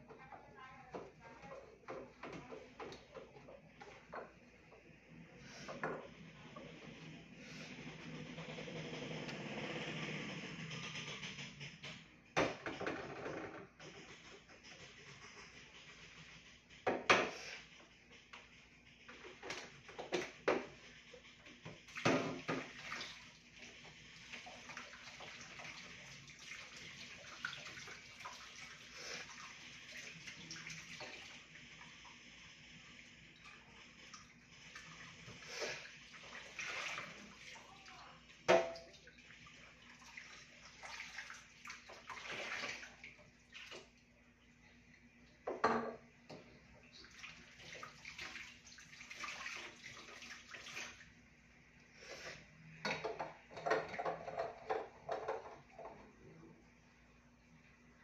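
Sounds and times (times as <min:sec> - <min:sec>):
tap water running into sink: 0:21.6 - 0:32.2, 0:52.8 - 0:56.0.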